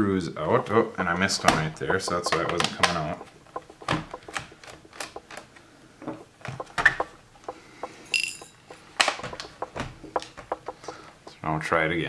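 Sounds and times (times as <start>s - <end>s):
small clicks and taps: 0.6s - 11.4s
screw ringing in dish: 8.1s - 8.7s.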